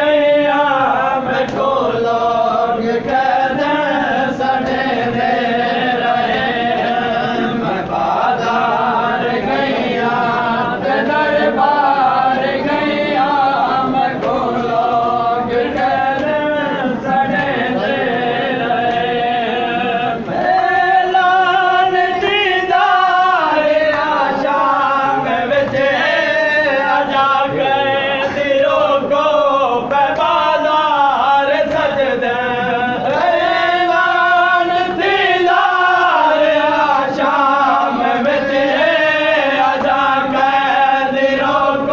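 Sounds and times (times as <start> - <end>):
men chanting a lament in unison: 0.0 - 41.9.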